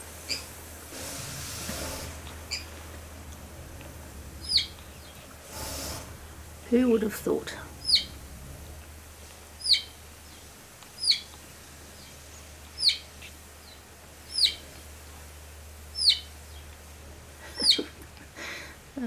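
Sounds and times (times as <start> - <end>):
high chirping call: 4.4 - 5.3, 7.8 - 8.2, 9.6 - 11.4, 12.0 - 14.7, 15.9 - 16.7.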